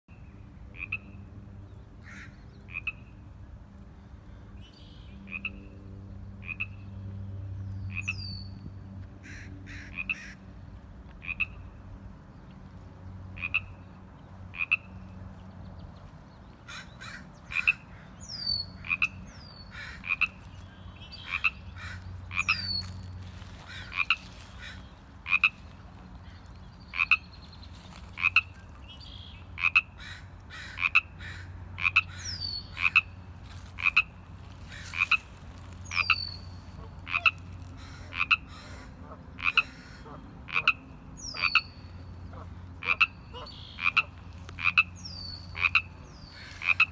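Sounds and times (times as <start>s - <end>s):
frog ribbit calls: 0.8s - 1.2s, 2.1s - 3.1s, 6.4s - 6.8s, 9.2s - 10.4s, 11.2s - 11.6s, 13.4s - 13.8s, 14.5s - 14.9s, 16.7s - 20.5s, 21.2s - 25.7s, 26.9s - 27.4s, 28.0s - 38.6s, 39.4s - 46.9s.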